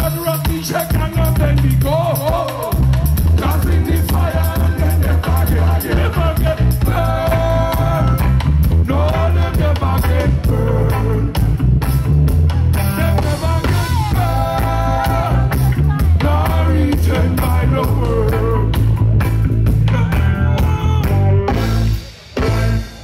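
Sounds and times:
heavy bass line: 0.0 - 23.0
live reggae band: 0.0 - 23.0.

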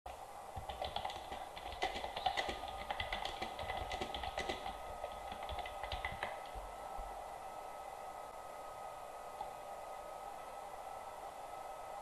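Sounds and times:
keyboard typing clicks: 0.6 - 6.6.

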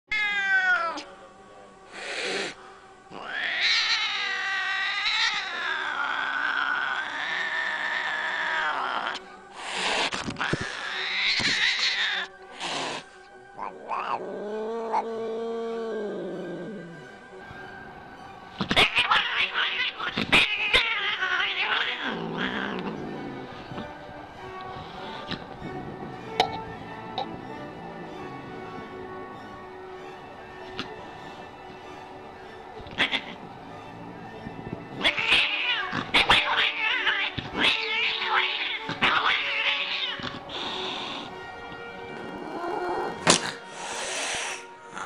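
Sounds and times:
cat yowling: 0.1 - 1.1, 3.1 - 9.3, 10.4 - 12.4, 13.6 - 16.8, 18.6 - 23.9, 32.8 - 33.5, 35.0 - 41.3
cat hissing: 1.9 - 17.0, 18.6 - 23.9, 24.6 - 29.0, 32.9 - 33.5, 34.8 - 41.4, 42.5 - 45.0
cat spitting: 43.2 - 44.6.

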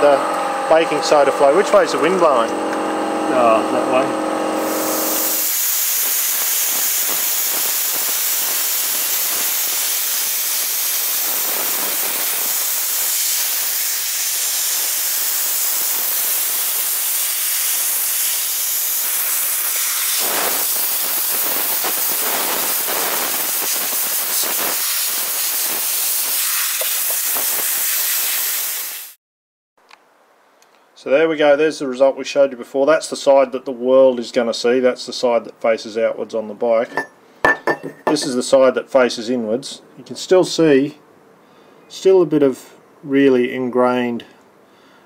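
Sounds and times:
compressed air gun hissing: 4.6 - 29.2.

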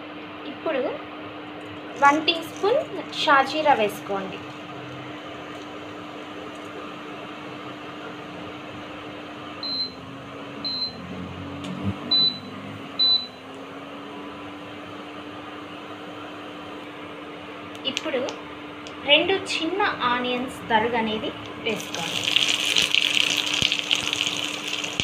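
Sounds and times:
electrical hum: 0.0 - 25.0
spices sizzling in hot oil: 21.6 - 25.0.

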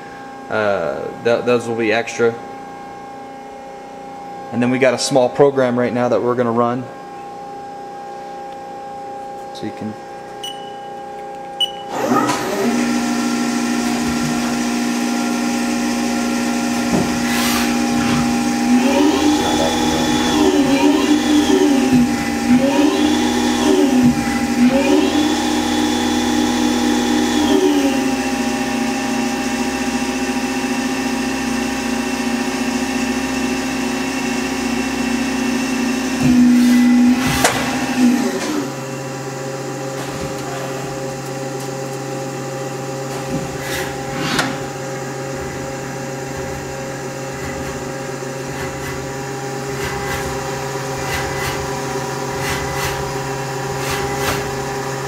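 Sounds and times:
lathe motors whining: 11.9 - 55.0.

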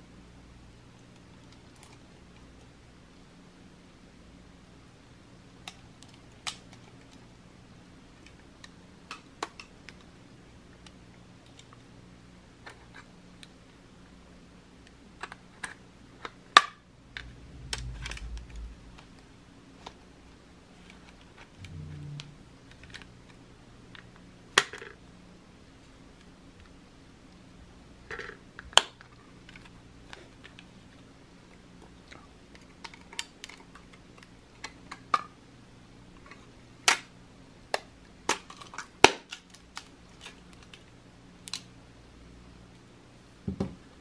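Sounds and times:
soft handling rumbles: 17.1 - 19.2.

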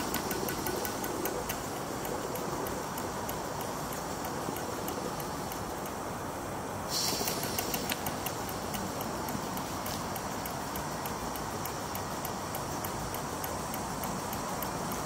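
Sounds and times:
steam engine hissing and ticking: 0.0 - 15.0.

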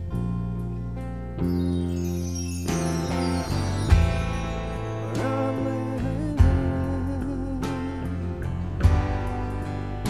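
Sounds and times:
acoustic guitar: 0.0 - 10.0
electric bass: 0.0 - 10.0
drums: 2.6 - 10.0
wavering lead vocal: 5.0 - 8.6.

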